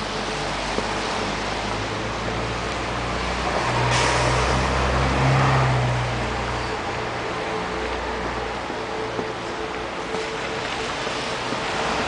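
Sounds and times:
street noise: 0.0 - 12.0
car driving past: 3.1 - 6.8.

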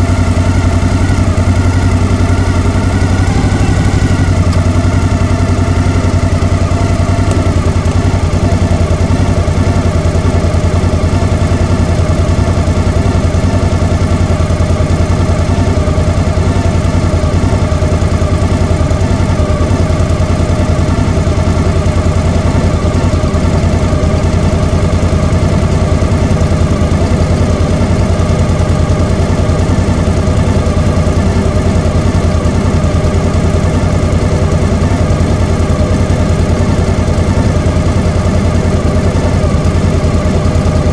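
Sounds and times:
scooter engines idling: 0.0 - 40.9.

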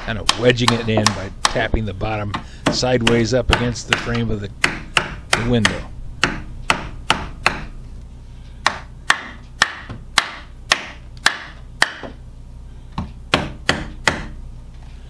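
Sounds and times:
hammer knocking on wood: 0.0 - 1.7.

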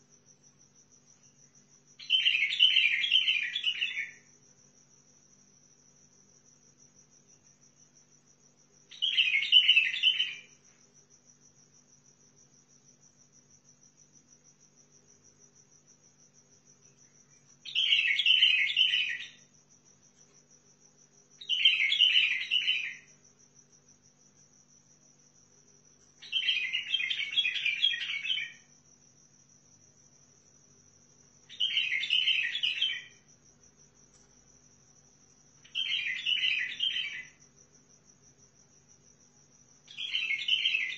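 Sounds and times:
bird warbling song: 2.0 - 4.2, 8.9 - 10.5, 17.7 - 19.4, 21.4 - 23.0, 26.2 - 28.6, 31.5 - 33.2, 35.7 - 37.3, 39.9 - 40.9.

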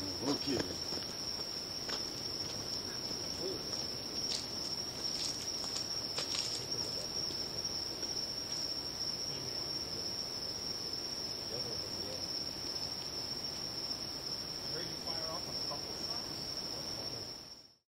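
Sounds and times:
night insects trilling: 0.0 - 17.8
footsteps on dry leaves: 4.3 - 7.0.

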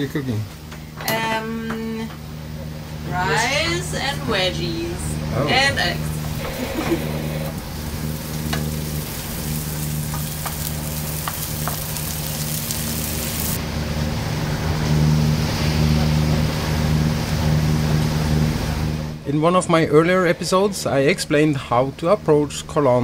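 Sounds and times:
diesel engine hum: 2.4 - 19.3
vegetables sizzling in a frying pan: 7.5 - 13.6.

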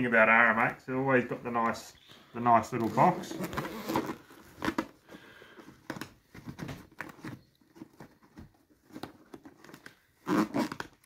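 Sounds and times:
hands tapping and scraping a case: 2.8 - 11.0.

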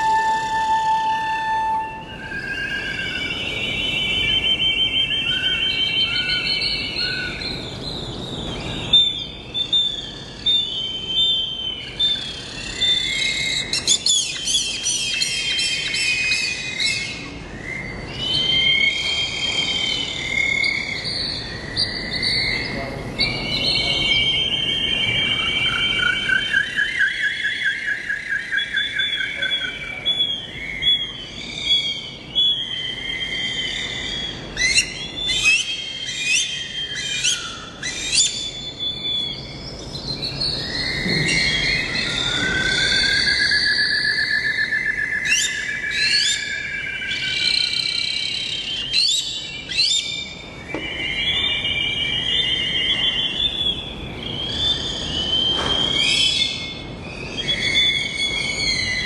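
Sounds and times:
birds singing: 0.0 - 59.0.

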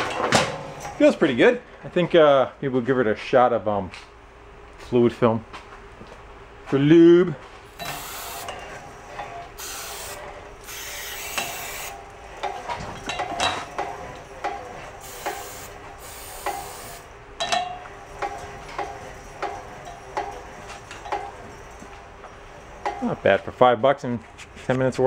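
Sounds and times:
hose reel crank clicking: 7.8 - 8.5, 9.6 - 12.0
aerosol spray hissing: 15.0 - 17.0.

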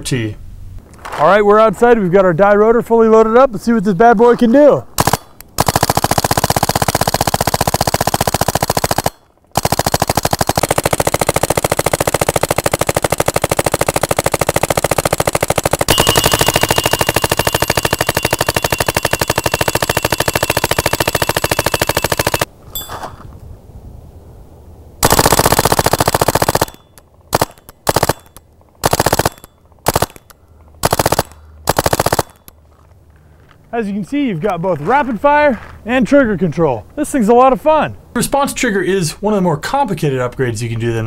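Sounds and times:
paintball marker rapid shots: 5.0 - 22.5, 25.0 - 32.5.

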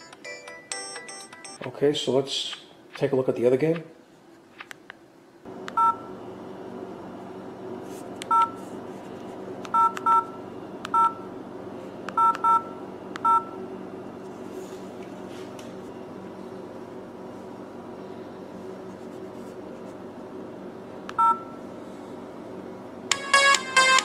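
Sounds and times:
steady low hum: 1.8 - 24.0
phone keypad two-tone beeps: 12.2 - 12.6.

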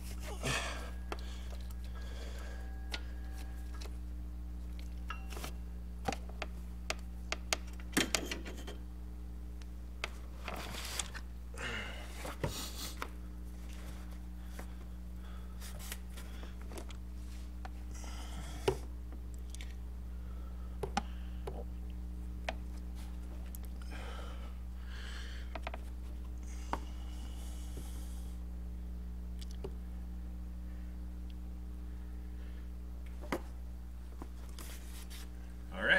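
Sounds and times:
steady low hum: 0.0 - 35.9.

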